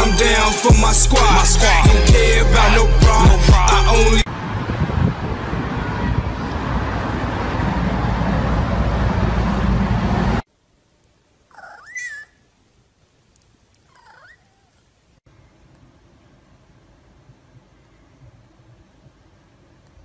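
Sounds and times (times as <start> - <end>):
loud rushing noise with rumble: 4.2 - 10.4.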